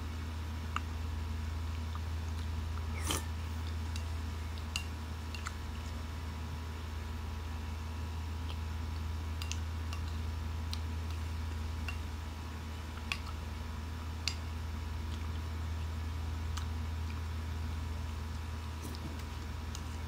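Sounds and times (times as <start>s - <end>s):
steady low hum: 0.0s - 20.0s
mouth eating sounds: 1.7s - 3.8s
metal spoon scraping ceramic bowl: 2.9s - 3.3s.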